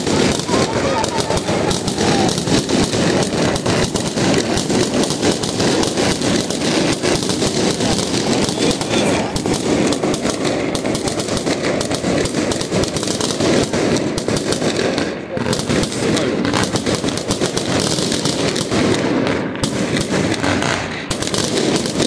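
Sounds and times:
fireworks bangs and crackles: 0.0s - 22.0s.

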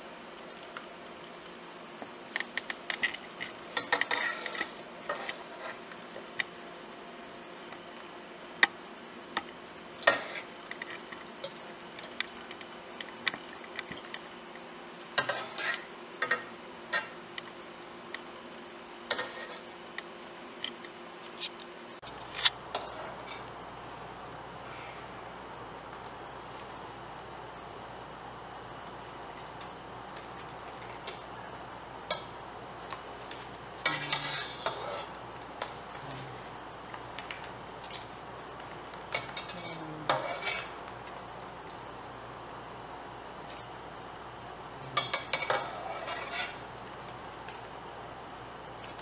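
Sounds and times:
steady low hiss: 0.0s - 49.0s
metal utensil scraping pot: 3.1s - 5.8s, 15.2s - 17.1s, 33.8s - 35.1s, 39.2s - 40.7s, 45.0s - 46.6s.

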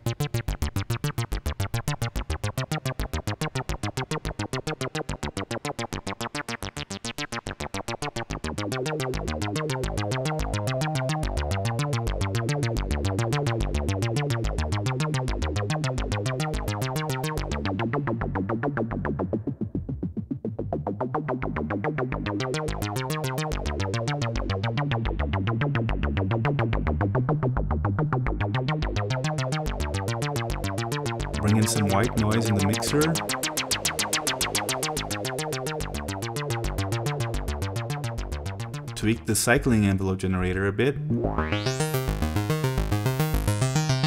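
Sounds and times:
synthesizer sequenced pattern: 28.6s - 39.3s, 41.0s - 44.0s.

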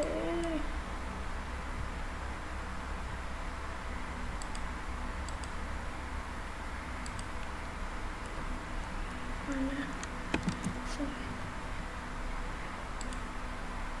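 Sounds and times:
low hum: 0.0s - 14.0s
computer mouse clicking: 4.4s - 4.7s, 5.3s - 5.6s, 7.0s - 7.5s, 9.9s - 10.9s, 13.0s - 13.3s.

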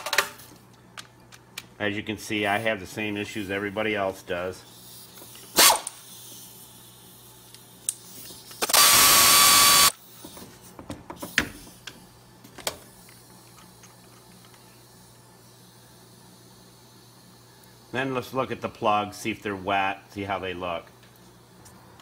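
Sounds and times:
air ratchet whine: 4.6s - 10.4s.

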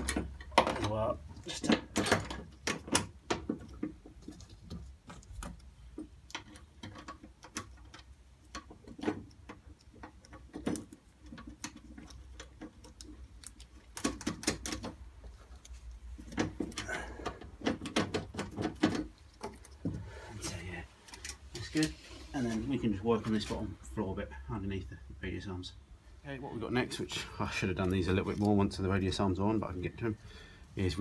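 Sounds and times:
metallic clicks and ticks: 0.0s - 19.9s.

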